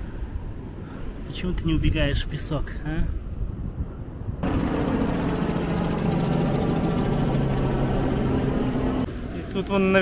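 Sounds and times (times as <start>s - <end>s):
helicopter engine and rotor drone: 4.4s - 9.1s.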